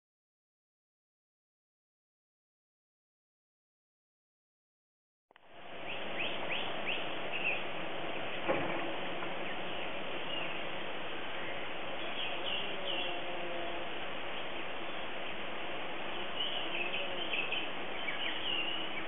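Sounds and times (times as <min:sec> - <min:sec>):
birds chirping: 0:05.4 - 0:19.0
steady background hiss: 0:05.4 - 0:19.0
single knock: 0:08.4 - 0:09.3.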